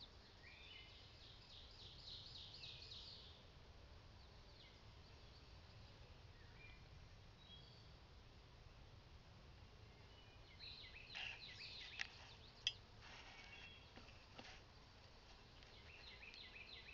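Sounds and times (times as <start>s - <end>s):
small birds chirping: 9.8s - 16.9s.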